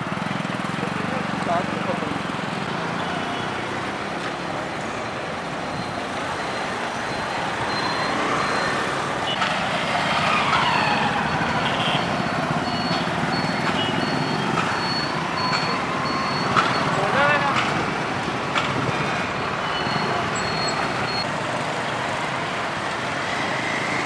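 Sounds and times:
road traffic passing: 0.0s - 24.0s
short high beep: 5.7s - 8.8s.

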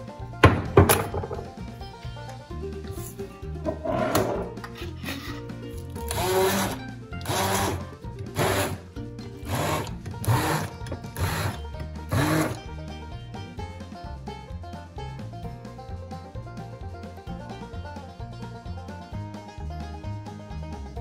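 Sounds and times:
background music: 0.0s - 21.0s
stick blender whirring: 5.8s - 12.7s.

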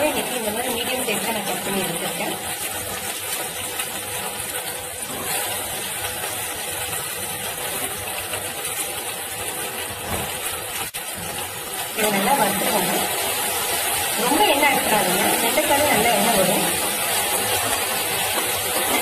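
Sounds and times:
okra sizzling in hot oil: 0.0s - 19.0s.

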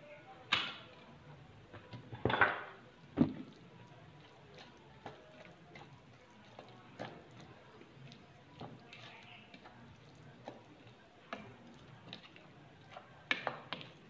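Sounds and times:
soft ticks of hand mixing: 3.4s - 14.0s.

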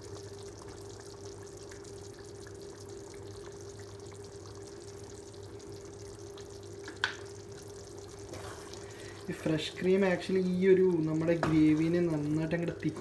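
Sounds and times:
curry simmering and bubbling: 0.0s - 13.0s.

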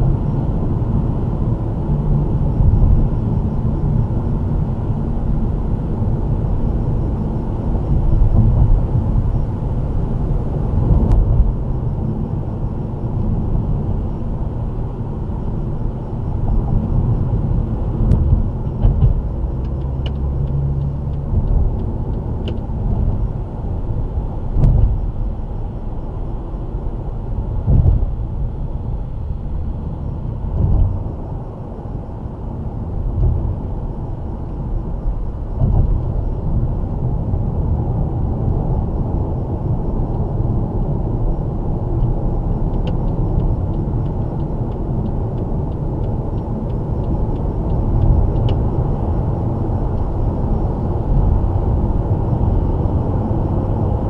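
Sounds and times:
car interior road rumble: 0.0s - 54.0s
thumps from road surface: 18.0s - 19.3s, 24.6s - 25.0s, 27.6s - 28.2s, 30.5s - 31.0s, 35.6s - 36.0s.

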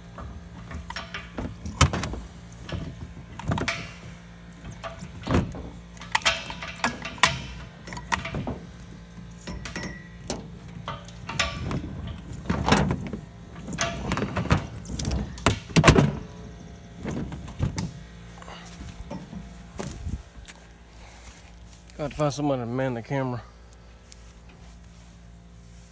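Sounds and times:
air compressor clunks and rattles: 0.0s - 22.4s
low steady hum: 0.0s - 25.9s.

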